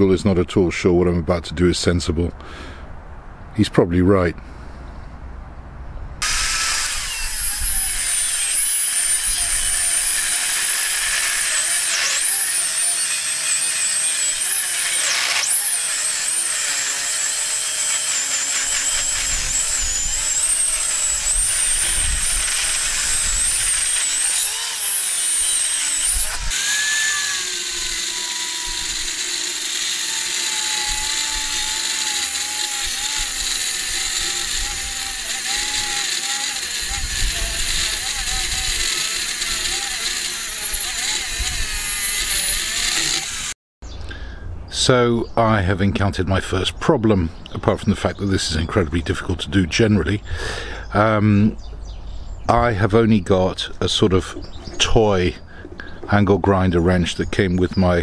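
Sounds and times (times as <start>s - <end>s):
angle grinder cutting steel: 6.2s - 43.6s.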